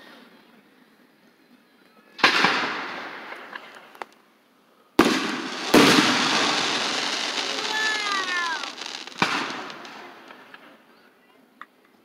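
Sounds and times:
firework bangs: 2.2 - 4.0, 5.0 - 10.7
scattered firework cracks: 2.2 - 4.2, 5.0 - 10.8.

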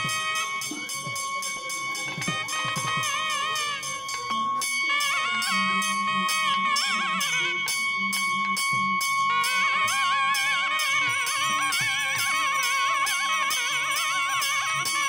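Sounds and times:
bell-like strikes: 0.0 - 15.0
steady ringing tone: 0.0 - 15.0
wavering devotional melody: 0.0 - 15.0.

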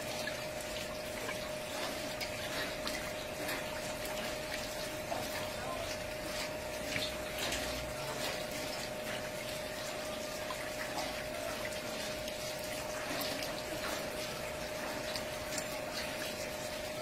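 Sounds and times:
water splashing through wheel: 0.0 - 17.0.

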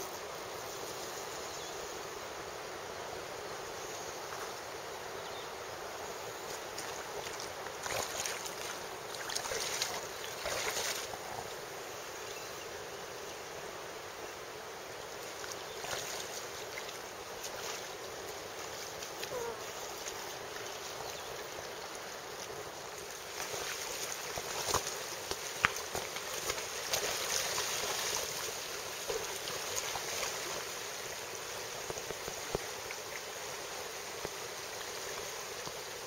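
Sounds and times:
river running over rocks: 0.0 - 36.0
water swishes: 5.8 - 12.1, 14.8 - 36.0.

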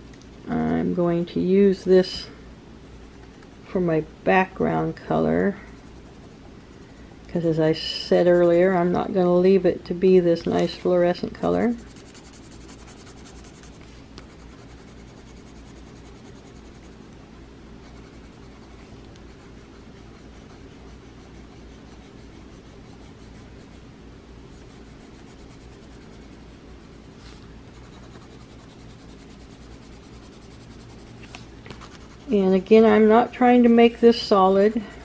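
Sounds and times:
faint low hum: 0.0 - 35.0
pencil scratching on paper: 5.7 - 8.8, 11.1 - 16.9, 17.8 - 23.8, 24.5 - 26.6, 27.2 - 32.7.

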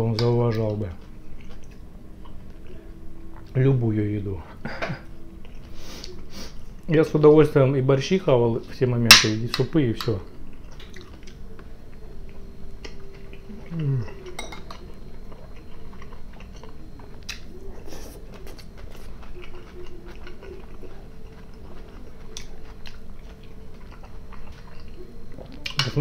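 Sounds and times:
low falling hum: 0.0 - 26.0
person chewing: 0.9 - 3.6, 4.7 - 6.9, 10.5 - 26.0
fork clinking on plate: 14.4 - 14.8.

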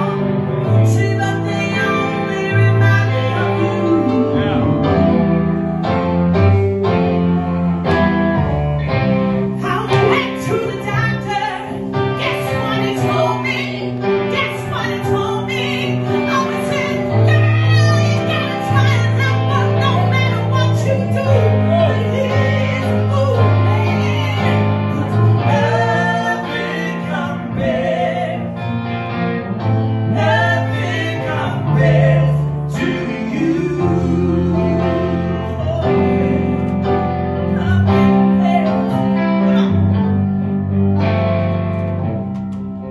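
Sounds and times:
woman and man singing: 0.0 - 5.2, 9.6 - 28.6, 30.1 - 39.8
keyboard accompaniment: 0.0 - 42.9.

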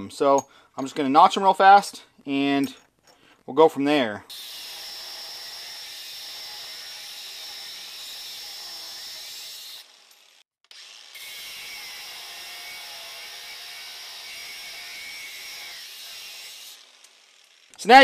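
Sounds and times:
cut-off wheel grinding metal: 4.3 - 17.9.

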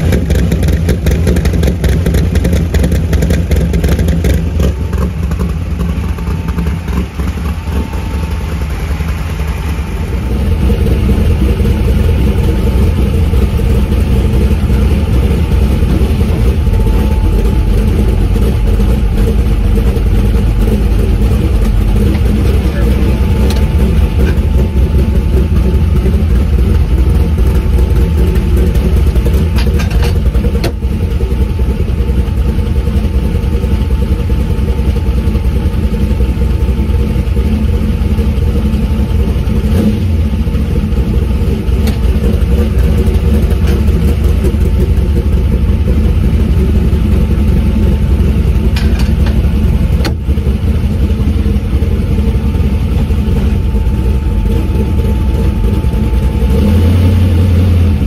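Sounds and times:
car engine running loud: 0.0 - 58.0.

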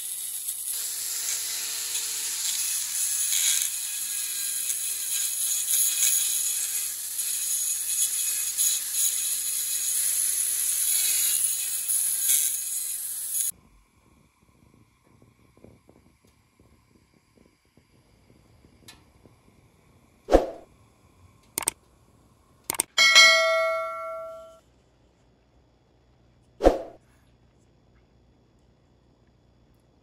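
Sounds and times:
rotary tool grinding steel: 0.0 - 13.5.

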